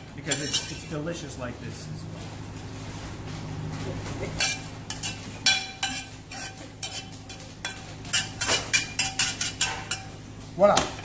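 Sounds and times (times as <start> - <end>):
metal spoon scraping pan: 0.3 - 1.0, 4.4 - 10.2.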